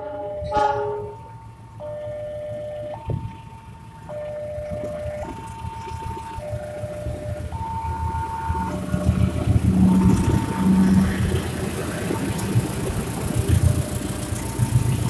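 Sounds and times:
level crossing two-tone alarm: 0.0 - 11.2
train engine rumble: 0.0 - 15.0.

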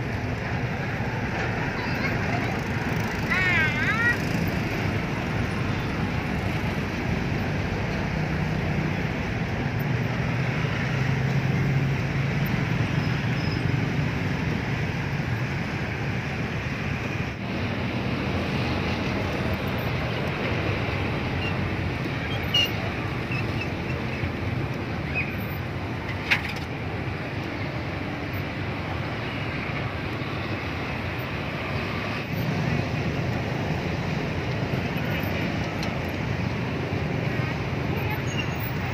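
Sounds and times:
street traffic hum: 0.0 - 38.9.

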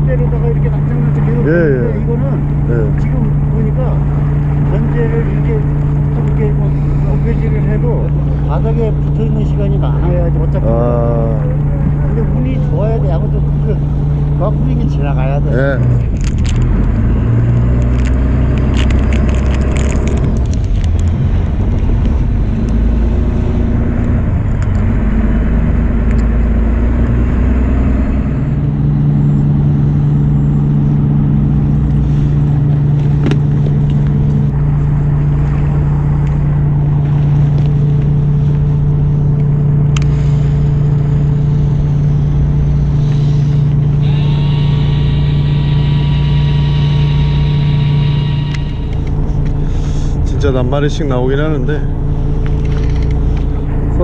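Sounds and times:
high steady whine: 0.0 - 17.2, 28.6 - 54.0
boat engine rumbling: 0.0 - 54.0.

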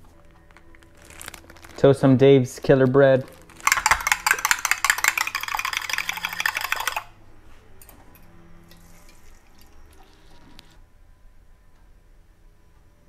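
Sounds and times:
whisk clicking against glass bowl: 3.6 - 7.1.

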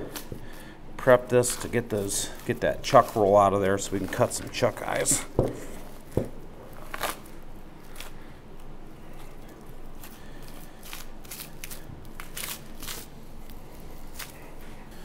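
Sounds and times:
knife scraping through dry meat: 0.0 - 6.1, 10.0 - 15.0.

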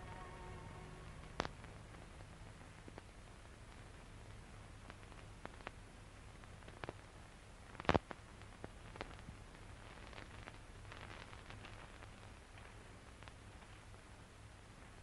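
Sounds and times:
brief crackle: 0.0 - 15.0
faint low hum and hiss: 0.0 - 15.0.

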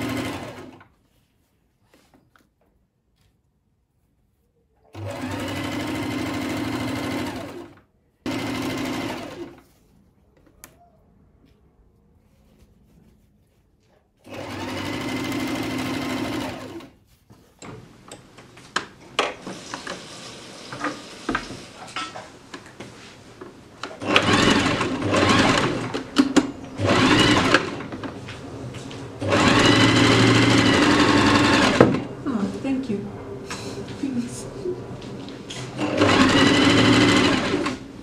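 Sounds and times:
sewing machine stitching: 0.0 - 0.9, 4.9 - 9.6, 14.2 - 17.0, 19.1 - 22.0, 23.8 - 28.1, 29.2 - 32.1, 35.5 - 38.0.

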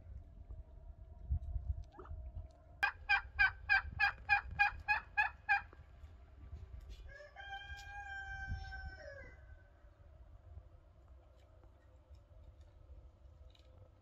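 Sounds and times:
rooster crowing: 7.0 - 9.6.

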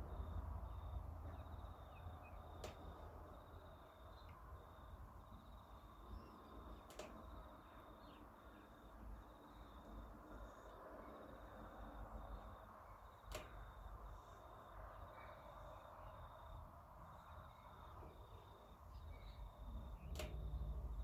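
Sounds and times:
faint background rumble: 0.0 - 21.0
sharp click: 2.6 - 2.9, 6.8 - 7.3, 13.2 - 13.7, 20.0 - 20.5.

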